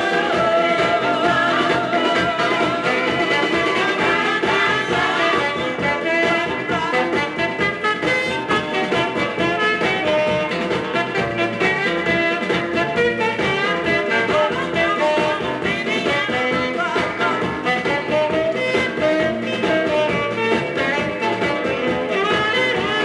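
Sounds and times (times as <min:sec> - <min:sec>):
vocal group rock and roll song: 0:00.0 - 0:23.0.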